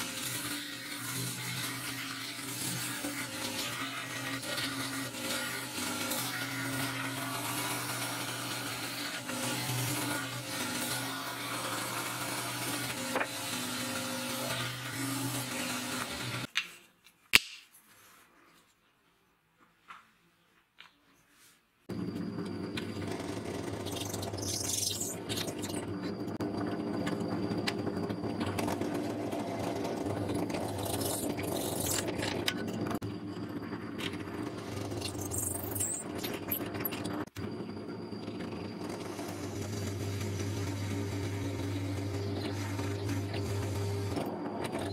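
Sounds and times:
belt grinder sanding wood: 0.0s - 16.5s
drill press motor hum: 0.0s - 16.5s, 21.9s - 44.9s.

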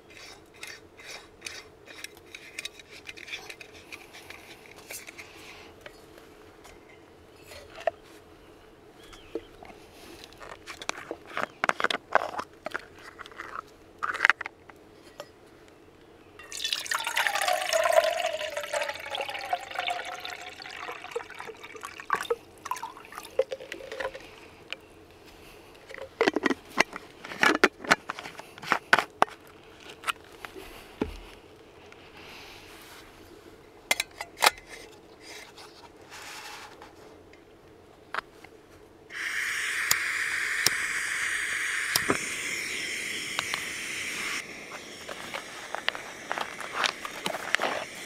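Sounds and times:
liquid pouring: 16.4s - 24.4s.

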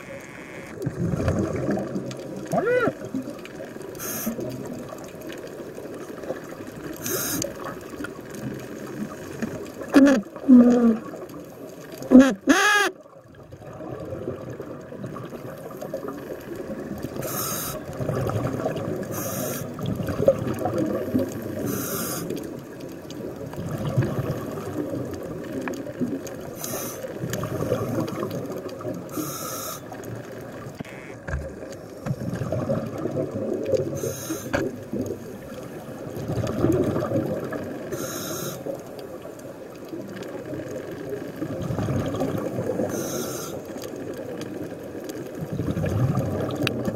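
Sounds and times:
bubbling rumble: 0.8s - 7.0s, 13.2s - 17.2s, 17.8s - 21.7s, 22.3s - 29.1s, 31.4s - 34.0s, 34.6s - 37.9s, 39.8s - 42.9s, 44.0s - 46.9s
regulator breathing hiss: 4.0s - 4.4s, 7.0s - 7.5s, 17.2s - 17.8s, 19.1s - 19.7s, 21.6s - 22.3s, 26.6s - 27.1s, 29.1s - 29.9s, 34.0s - 34.6s, 37.9s - 38.7s, 42.9s - 43.6s.

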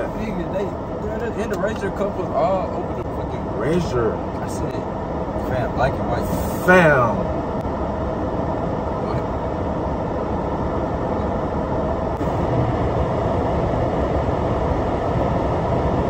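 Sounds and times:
road and engine rumble in car: 0.0s - 16.0s.

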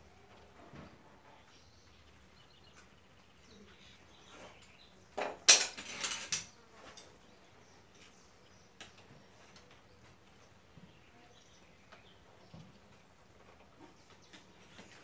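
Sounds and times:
metal tools clinking and scraping: 5.5s - 7.2s.

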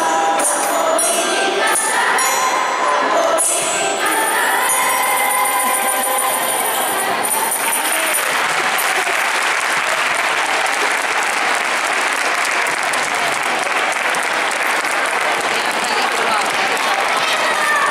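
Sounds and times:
music: 0.0s - 9.2s
audience applauding: 7.4s - 17.9s.

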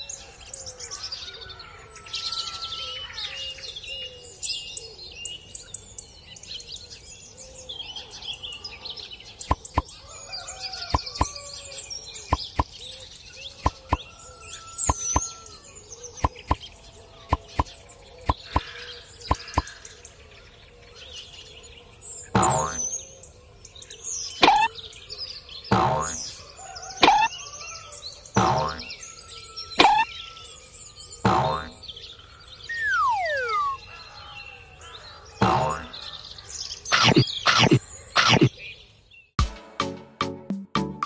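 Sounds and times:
birds chirping and singing: 0.0s - 39.3s.

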